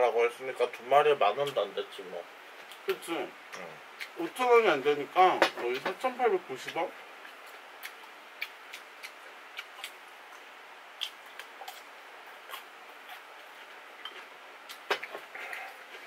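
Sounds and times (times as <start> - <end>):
faint steady hiss: 0.0 - 16.0
chewing: 7.2 - 16.0.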